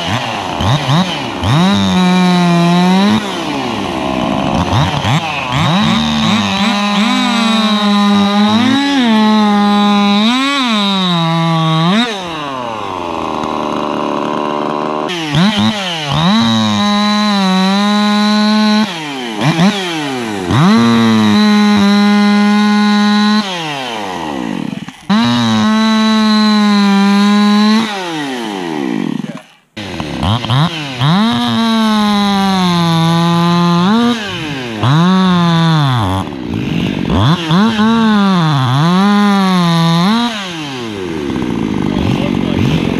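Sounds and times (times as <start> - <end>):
chainsaw revving: 0.0 - 42.9
chain cutting into wood: 22.9 - 31.7.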